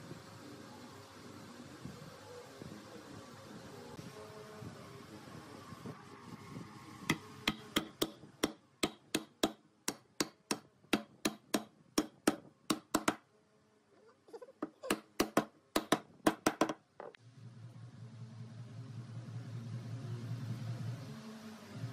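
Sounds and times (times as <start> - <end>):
hammer knocking on wood: 7.1 - 13.2, 14.9 - 16.8.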